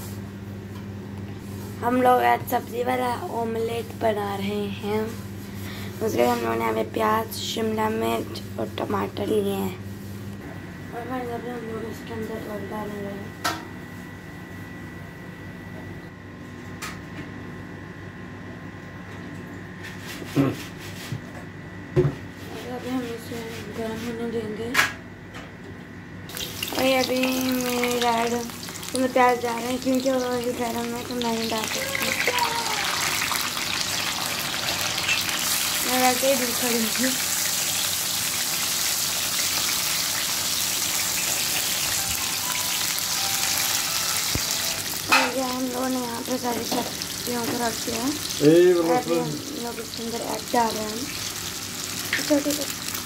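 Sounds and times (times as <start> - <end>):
background hum with faint whine: 0.0 - 53.0
onion and tomato sizzling in oil: 26.3 - 53.0.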